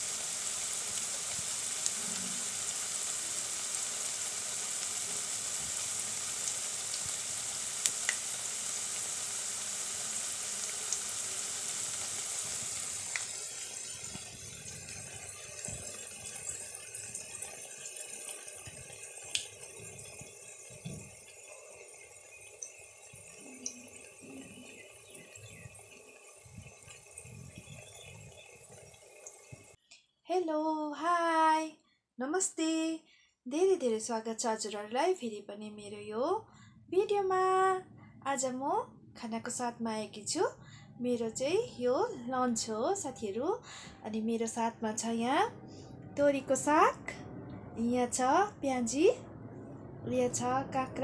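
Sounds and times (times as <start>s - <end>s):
fritters deep-frying in hot oil: 0.0s - 29.8s.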